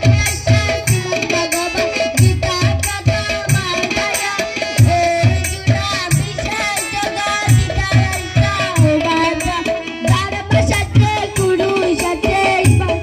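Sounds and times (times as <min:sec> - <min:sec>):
steady drum beat: 0:00.0 - 0:13.0.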